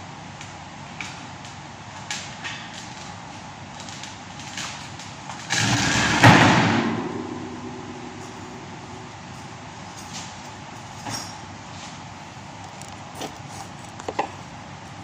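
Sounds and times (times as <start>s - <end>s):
wire grill grate rattling: 3.7s - 11.7s
metal grate clashing on workbench: 5.5s - 11.4s.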